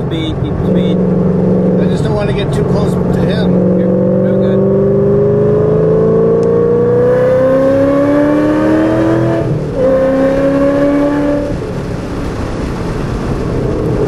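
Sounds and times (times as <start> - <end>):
car engine accelerating: 0.0 - 14.0
road and wind noise: 0.0 - 14.0.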